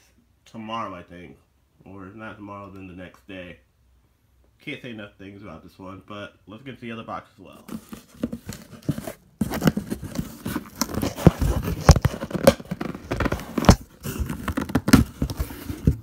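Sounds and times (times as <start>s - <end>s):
cardboard box rustling and knocking: 7.7s - 16.0s
tape tearing: 7.7s - 16.0s.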